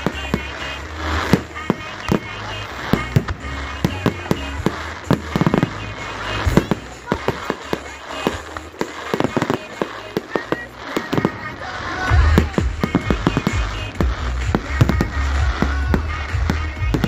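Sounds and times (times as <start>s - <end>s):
fireworks bangs and crackles: 0.0s - 17.0s.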